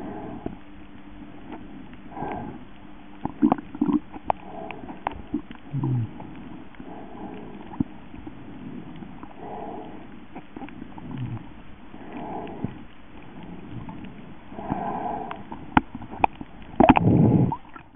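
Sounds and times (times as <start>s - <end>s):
underwater moving water gurgling: 0.0s - 17.9s.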